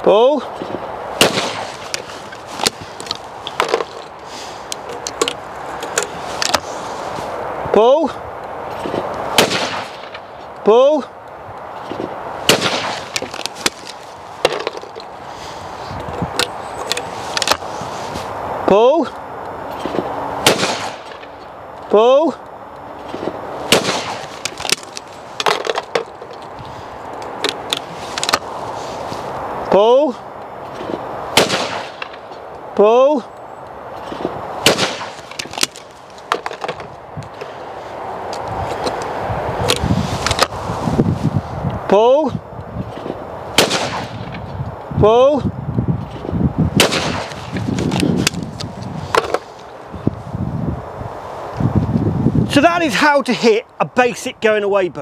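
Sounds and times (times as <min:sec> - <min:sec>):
shotgun shot with echo: 0:01.2 - 0:01.7, 0:09.4 - 0:10.1, 0:12.5 - 0:13.1, 0:20.4 - 0:21.1, 0:23.7 - 0:24.2, 0:31.4 - 0:32.2, 0:34.6 - 0:35.2, 0:43.6 - 0:44.1, 0:46.8 - 0:47.3.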